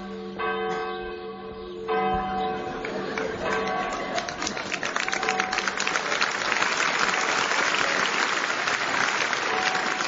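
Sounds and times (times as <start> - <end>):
faint church bell ringing: 0.0 - 4.6, 5.2 - 6.1, 9.4 - 10.0
audience applauding: 2.8 - 10.0.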